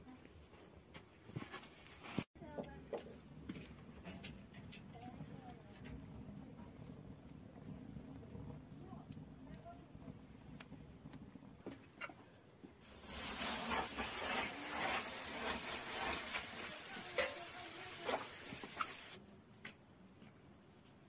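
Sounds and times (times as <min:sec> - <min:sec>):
wet cloth sizzling on hot clay: 0:12.7 - 0:19.2.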